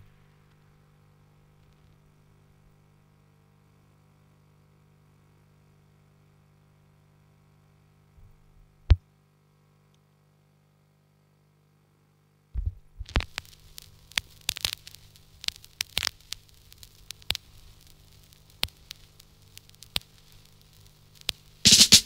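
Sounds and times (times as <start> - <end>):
vinyl surface crackle and pops: 1.5 - 2.1, 12.6 - 22.0.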